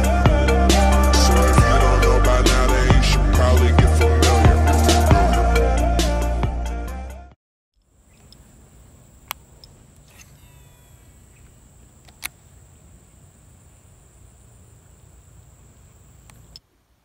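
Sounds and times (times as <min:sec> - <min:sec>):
high insect drone: 0:00.0 - 0:05.4, 0:07.8 - 0:16.6
intro music: 0:00.0 - 0:07.3
sharp clicks: 0:07.8 - 0:08.5, 0:09.2 - 0:10.7, 0:11.4 - 0:12.4
faint chirps: 0:07.8 - 0:08.8, 0:09.6 - 0:16.6.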